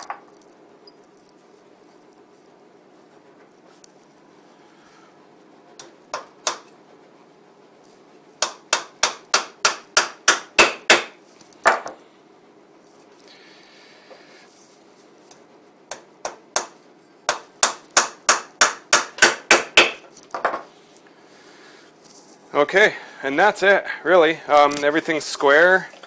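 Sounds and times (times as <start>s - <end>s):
hammer striking nail into wood: 5.8s - 6.7s, 8.4s - 12.0s, 15.9s - 20.0s.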